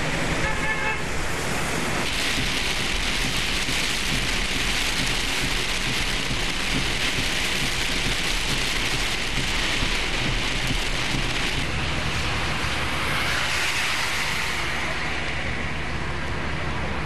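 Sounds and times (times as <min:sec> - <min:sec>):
heavy rain on windshield: 0:01.8 - 0:12.6.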